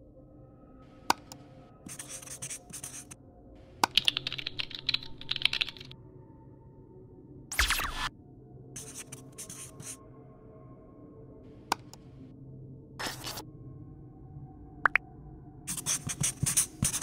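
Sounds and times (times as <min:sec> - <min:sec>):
keyboard typing: 0:03.8 - 0:05.9.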